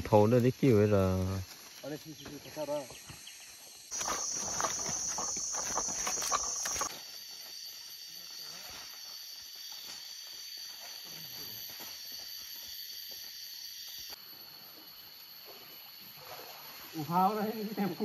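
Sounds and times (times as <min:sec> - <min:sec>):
insects droning: 0:00.0 - 0:18.0
footsteps crunching through leaves: 0:03.9 - 0:07.4.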